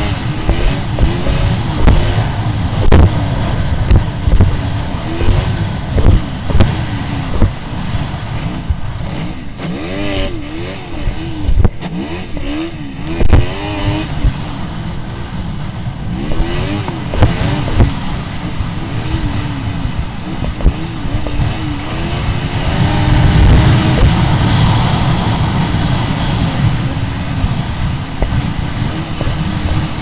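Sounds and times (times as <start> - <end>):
sharp thumps: 0.0 - 14.5, 16.2 - 18.1
snowmobile engine revving: 0.0 - 30.0.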